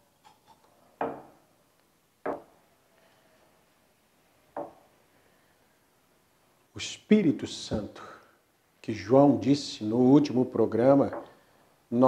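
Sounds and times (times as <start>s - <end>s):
cup knocking on stone countertop: 1.0s - 1.4s, 2.3s - 2.5s.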